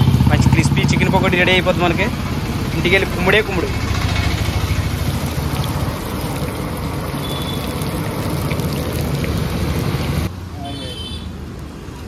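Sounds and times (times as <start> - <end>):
low steady rumble: 0.3 - 10.3
oil sizzling and bubbling: 2.2 - 10.3.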